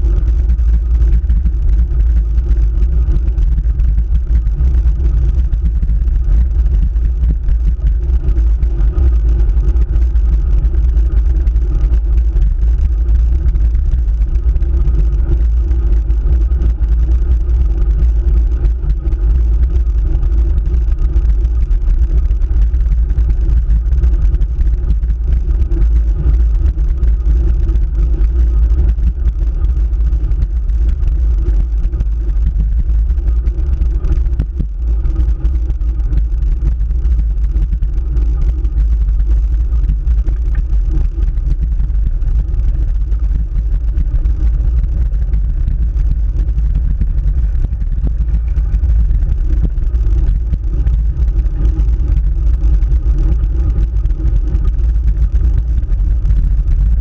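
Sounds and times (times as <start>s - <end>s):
road vibration: 0.0s - 57.0s
wind rumble: 0.0s - 57.0s.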